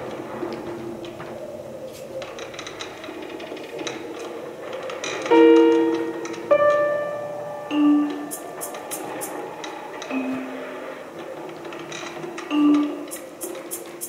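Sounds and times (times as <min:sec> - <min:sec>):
faint scattered clicks: 0:11.2 - 0:14.0.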